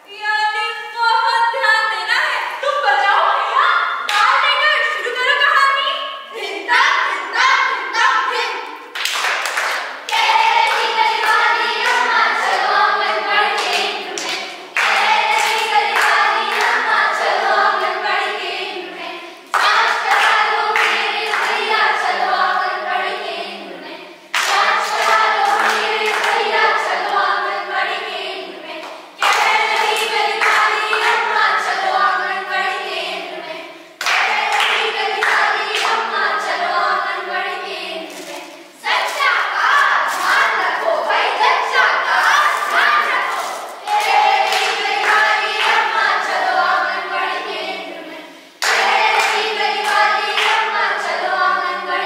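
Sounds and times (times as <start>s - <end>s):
young voices singing together: 0.0s - 52.0s
hand claps: 9.0s - 12.7s, 13.6s - 16.8s, 19.5s - 21.6s, 24.4s - 26.4s, 28.8s - 31.3s, 34.0s - 36.0s, 43.3s - 46.1s, 48.6s - 50.7s.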